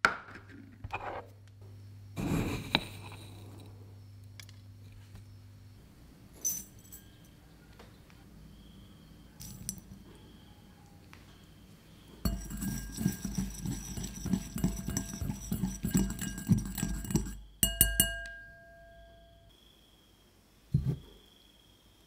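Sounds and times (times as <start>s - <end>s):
sharp ringing clinks: 6.4s - 7.3s, 15.9s - 19.5s
whisk clicking against bowl: 12.3s - 18.4s.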